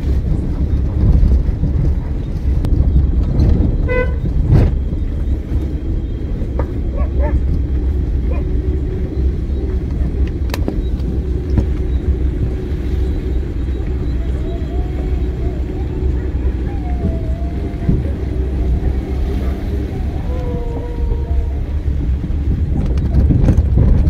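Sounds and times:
car engine and road noise: 0.0 - 24.0.

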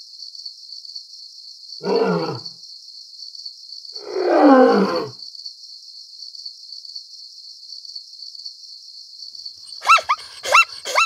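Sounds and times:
animal yelping barks: 1.8 - 2.4, 9.7 - 11.0.

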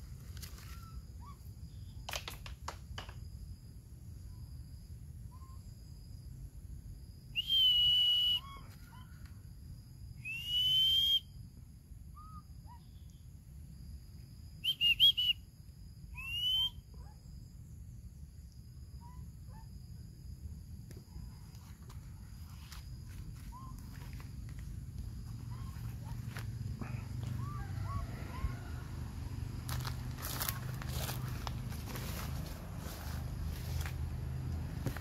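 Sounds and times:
high clear whistles: 7.3 - 9.1, 10.2 - 11.4, 14.6 - 15.5, 16.1 - 17.0.

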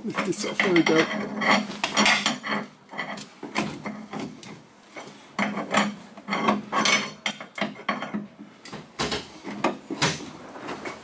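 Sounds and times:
pry bar scraping and clanking on metal: 0.1 - 4.3.

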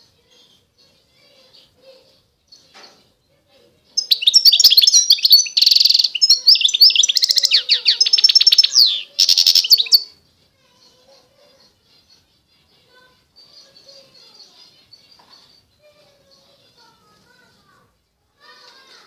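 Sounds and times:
finch singing trills: 4.0 - 10.1.

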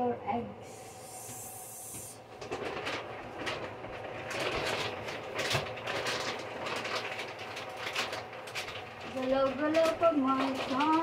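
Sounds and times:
kitchen items clattering: 2.4 - 11.0.

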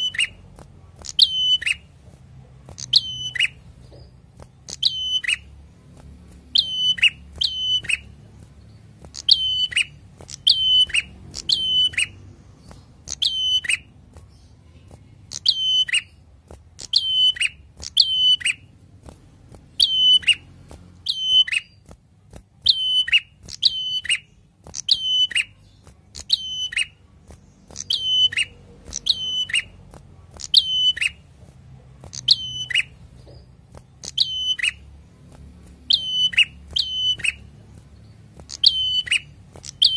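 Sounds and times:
bird calling sharp notes: 0.0 - 1.8, 2.8 - 3.6, 4.7 - 5.5, 6.5 - 8.1, 9.1 - 12.2, 13.0 - 13.9, 16.8 - 18.7, 19.8 - 21.8, 27.7 - 29.8, 34.0 - 34.8, 35.8 - 37.5, 38.5 - 39.9.

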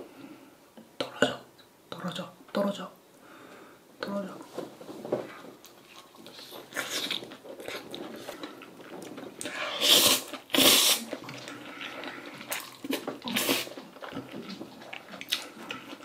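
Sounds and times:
person chewing: 5.6 - 16.0
noodle slurping: 9.7 - 15.9.

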